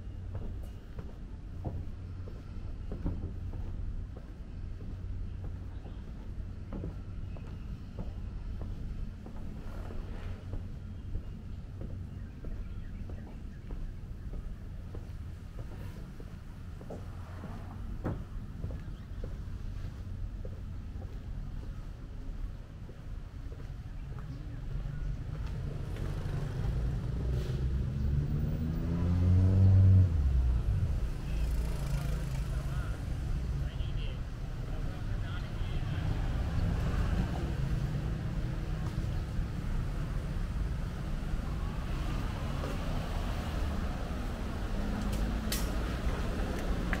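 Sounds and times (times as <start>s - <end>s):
cars passing: 0.0s - 21.2s, 23.2s - 47.0s
low traffic rumble: 0.0s - 47.0s
vehicle engine accelerating: 25.3s - 33.3s, 36.2s - 47.0s.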